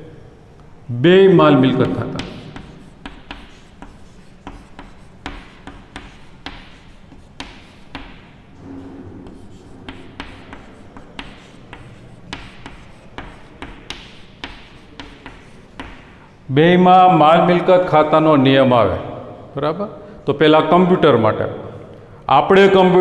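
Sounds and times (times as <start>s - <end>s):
chalk writing on a blackboard: 1.8s - 16.3s.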